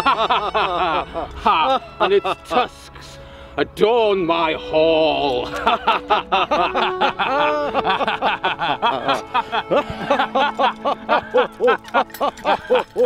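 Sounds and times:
men laughing loudly: 0.0s - 3.0s, 5.3s - 13.0s.

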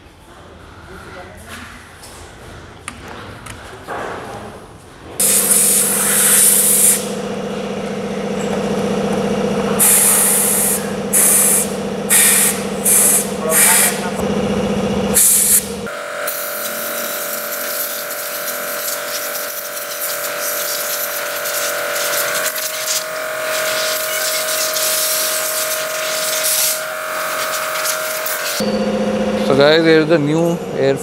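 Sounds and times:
different steady hum: 5.0s - 31.0s
steady machine hum: 5.1s - 31.0s
compressed-air blow gun hissing blasts: 5.2s - 7.1s, 9.8s - 14.1s, 15.2s - 15.7s, 16.3s - 28.6s.

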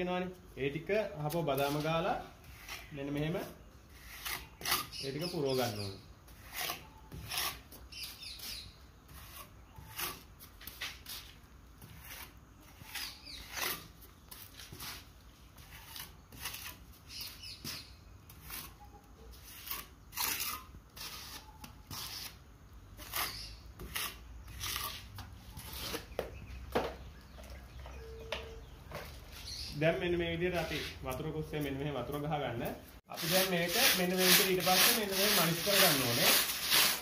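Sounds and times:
trowel scraping wet mortar: 1.2s - 22.4s, 23.0s - 26.2s, 33.1s - 37.0s.

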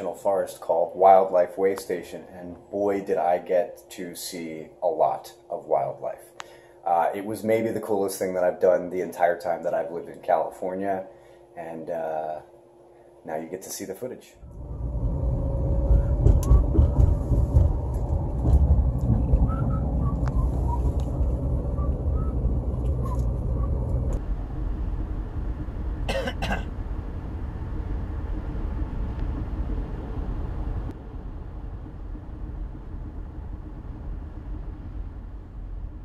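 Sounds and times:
car engine and tyre rumble: 14.5s - 36.0s.

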